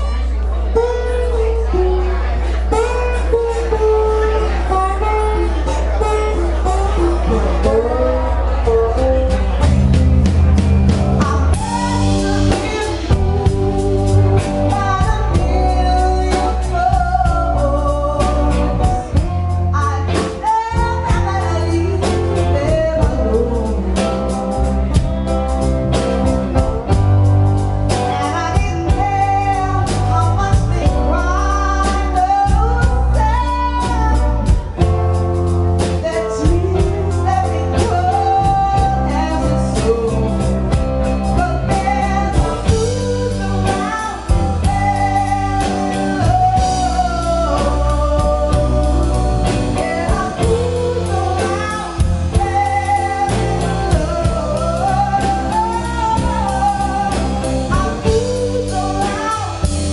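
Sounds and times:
live band playing: 0.0 - 59.9
woman singing: 11.2 - 24.7, 26.5 - 59.9.

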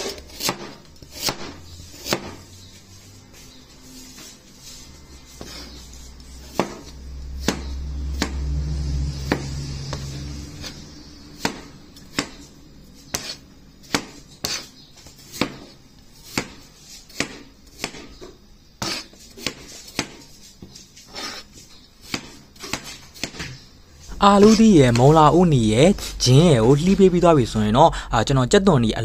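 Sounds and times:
cleaver chopping on cutting board: 0.0 - 2.4, 6.5 - 8.4, 11.4 - 12.4, 13.1 - 14.7, 15.3 - 18.1, 18.8 - 20.2, 22.0 - 23.4
low hum: 5.9 - 13.8, 23.8 - 29.0.

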